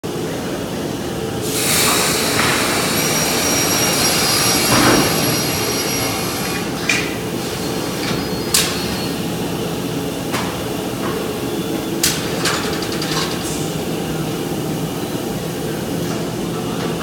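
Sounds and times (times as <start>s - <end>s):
machine humming: 0.7s - 12.1s.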